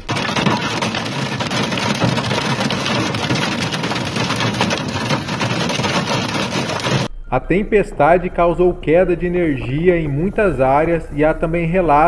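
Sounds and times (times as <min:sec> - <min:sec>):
driving rain: 0:00.0 - 0:07.1.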